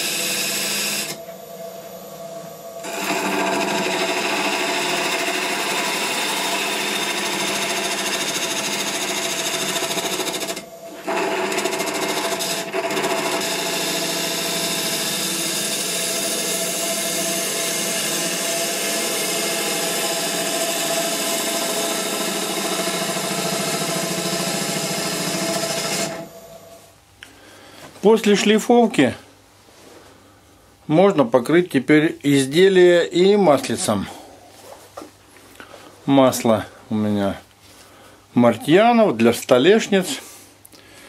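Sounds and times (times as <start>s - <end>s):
lathe motor whine: 0.0s - 26.8s
bowl gouge cutting wood: 2.8s - 26.3s.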